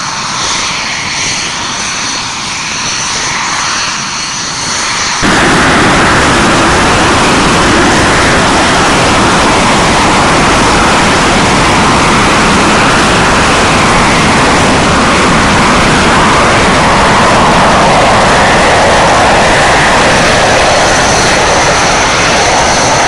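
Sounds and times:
jet engines roaring: 0.0s - 23.0s.

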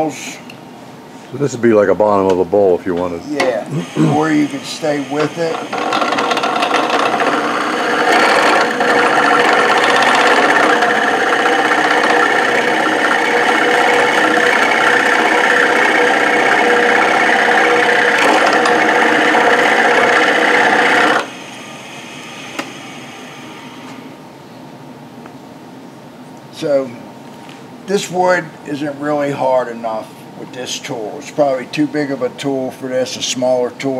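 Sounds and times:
lathe humming: 3.0s - 24.1s
cutter wheel rasping on wood: 5.2s - 21.3s.

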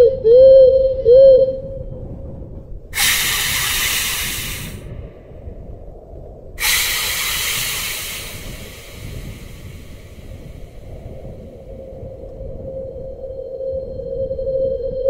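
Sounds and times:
steady low rumble: 1.5s - 15.0s
loud hisses: 3.0s - 4.9s, 6.6s - 11.3s.

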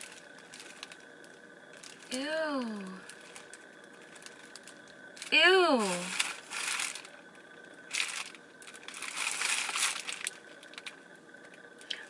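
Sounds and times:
plastic package crinkling: 0.0s - 12.0s.

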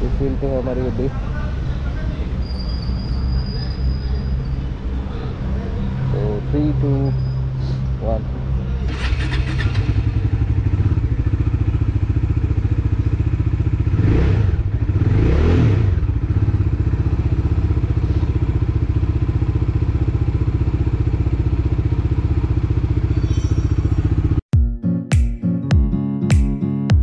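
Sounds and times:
motorcycle engine idling: 8.9s - 15.2s, 15.9s - 24.4s.

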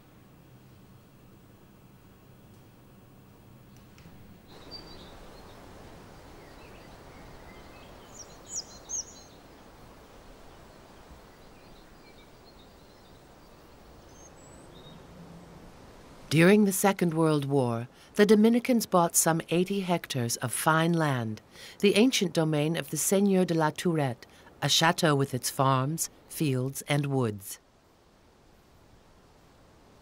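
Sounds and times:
faint low hum: 0.0s - 30.0s
light background hiss: 0.0s - 30.0s
small birds chirping: 3.7s - 9.7s, 10.4s - 15.1s.

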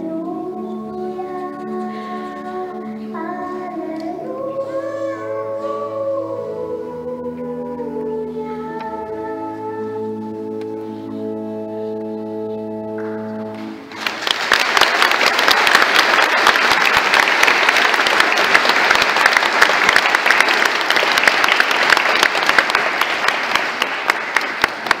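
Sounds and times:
congregation applauding: 13.6s - 25.0s.

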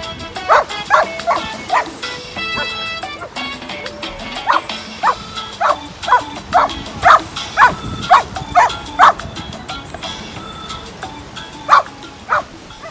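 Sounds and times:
dog barking: 0.5s - 1.9s, 2.5s - 3.3s, 4.4s - 9.2s, 11.7s - 12.9s.

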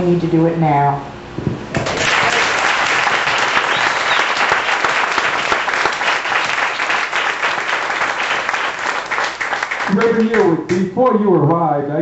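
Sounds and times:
audience applauding: 1.8s - 10.7s.

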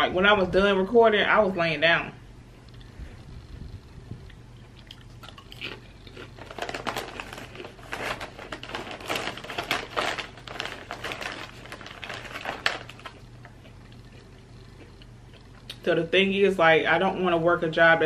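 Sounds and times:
crunching potato chips: 4.6s - 15.8s
plastic chip bag crinkling: 4.8s - 15.8s.

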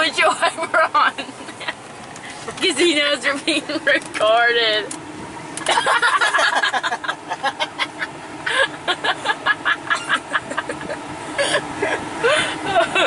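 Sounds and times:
people laughing: 5.6s - 11.0s, 11.9s - 13.0s.

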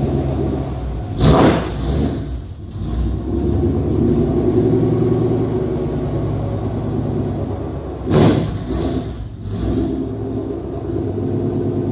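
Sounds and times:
car engine running: 0.0s - 11.9s.

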